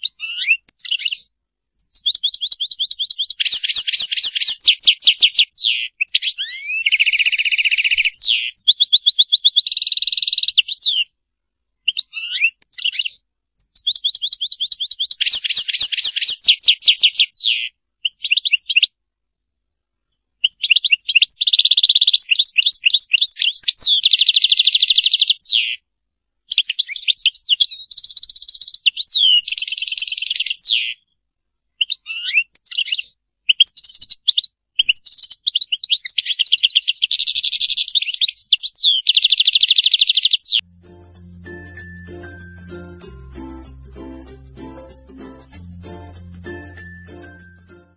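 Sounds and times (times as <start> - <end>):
goldfinch twittering song: 0.1 - 11.0, 11.9 - 18.8, 34.8 - 40.6.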